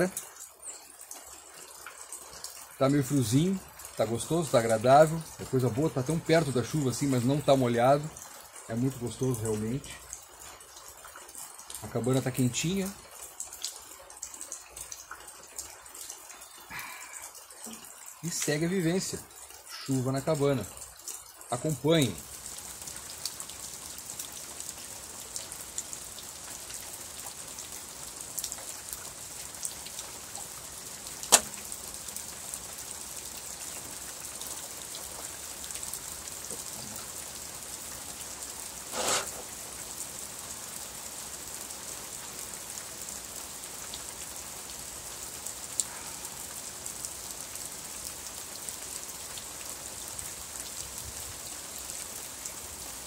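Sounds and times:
steady rain falling: 0:00.0 - 0:53.0
sharp click: 0:31.3 - 0:31.6
short scrape: 0:38.9 - 0:39.4.

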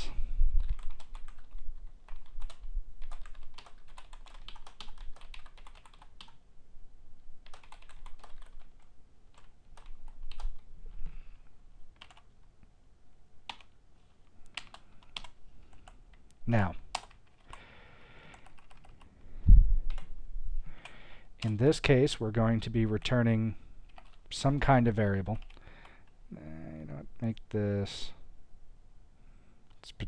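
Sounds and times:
typing on a computer keyboard: 0:00.6 - 0:06.4, 0:07.4 - 0:10.6, 0:12.0 - 0:12.4, 0:13.5 - 0:13.7, 0:14.5 - 0:16.2, 0:16.9 - 0:17.6, 0:18.3 - 0:19.1, 0:23.9 - 0:24.3, 0:25.3 - 0:26.2.

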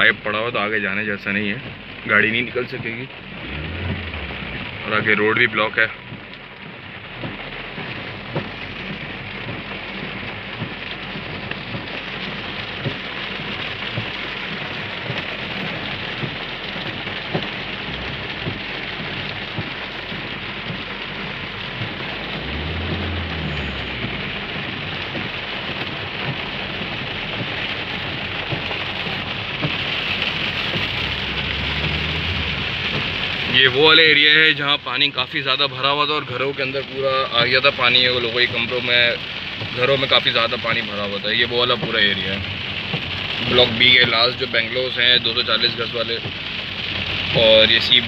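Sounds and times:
heavy rain on car roof: 0:00.0 - 0:48.0
low rumble: 0:02.7 - 0:33.8, 0:40.5 - 0:45.3.

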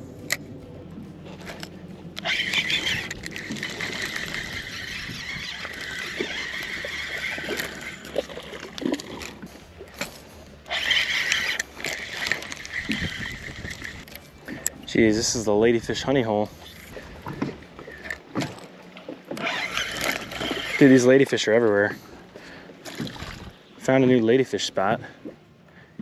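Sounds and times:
fishing reel whirring: 0:01.5 - 0:09.6, 0:10.6 - 0:18.7, 0:19.3 - 0:21.9, 0:22.8 - 0:23.6
water splashes: 0:02.2 - 0:14.7, 0:16.5 - 0:25.5.

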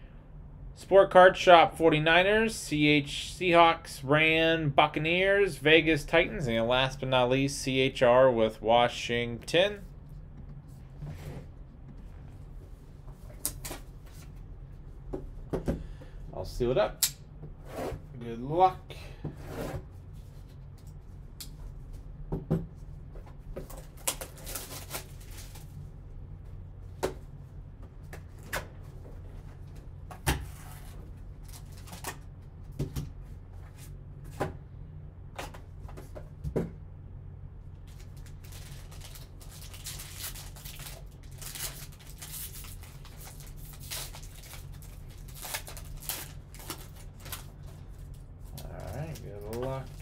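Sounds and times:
steady low hum: 0:00.0 - 0:50.0
foil wrapper crinkling: 0:23.8 - 0:25.7, 0:37.8 - 0:50.0.

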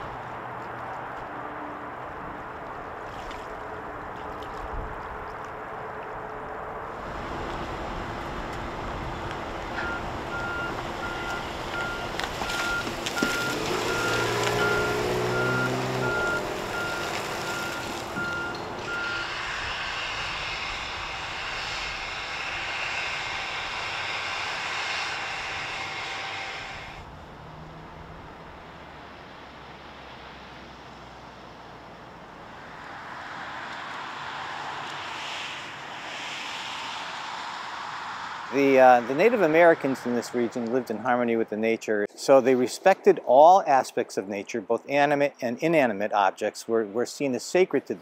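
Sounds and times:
rumble of vehicles and machinery: 0:00.0 - 0:48.0
heavy engine drone: 0:05.6 - 0:40.0
reversing alarm beeping: 0:09.8 - 0:19.4.

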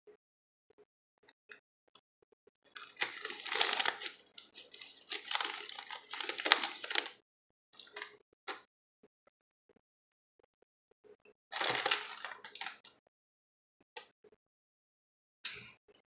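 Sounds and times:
plastic chip bag crinkling: 0:02.7 - 0:07.2, 0:07.8 - 0:08.2, 0:11.5 - 0:12.9.

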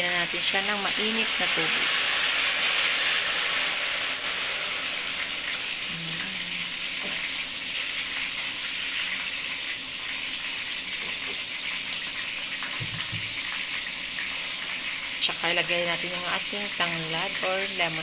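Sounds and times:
vegetables hissing in a pot: 0:00.2 - 0:09.7.

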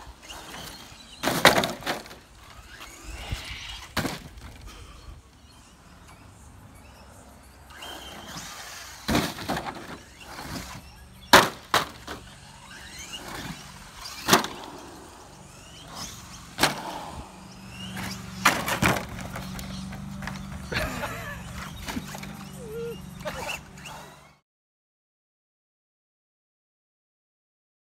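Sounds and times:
toy truck landing clacks: 0:00.4 - 0:02.9, 0:07.7 - 0:17.0, 0:17.7 - 0:20.7
electric motor whining: 0:01.8 - 0:24.4.

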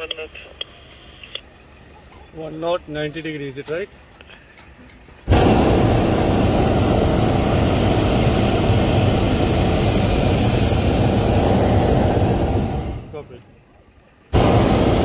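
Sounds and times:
propane burner blast: 0:05.2 - 0:13.4, 0:14.3 - 0:15.0.

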